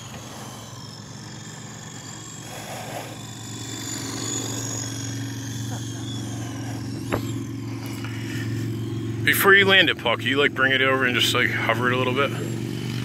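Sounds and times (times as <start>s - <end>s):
low steady hum: 0.0s - 13.0s
toy helicopter rotor whine: 0.0s - 13.0s.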